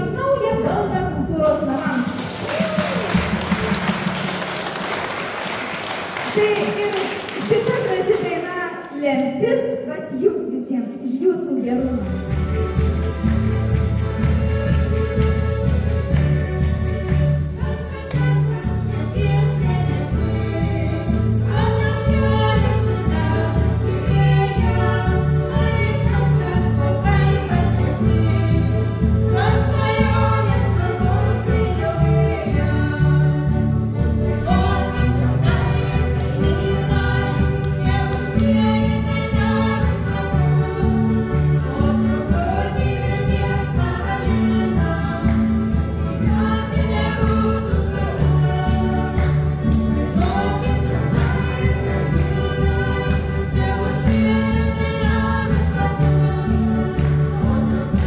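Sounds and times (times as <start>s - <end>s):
folk band playing: 0.0s - 9.0s, 11.6s - 58.0s
group of voices singing: 18.1s - 58.0s.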